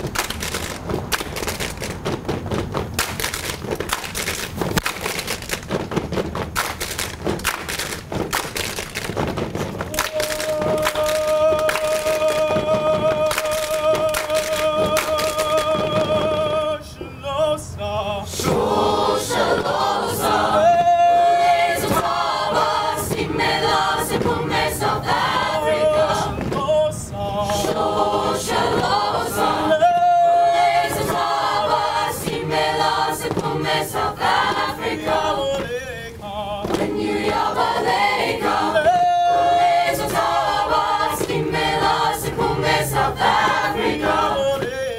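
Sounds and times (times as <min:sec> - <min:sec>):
mixed choir singing: 0:09.9 - 0:44.9.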